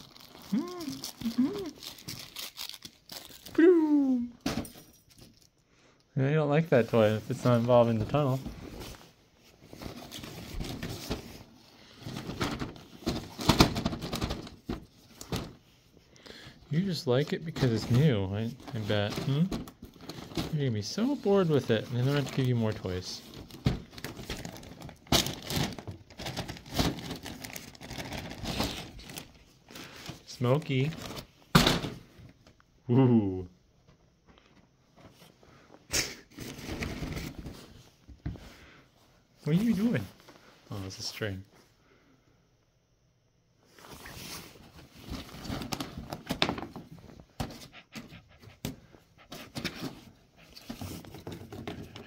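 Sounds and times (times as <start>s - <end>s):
fabric rustling and scuffling: 6.7s - 13.9s.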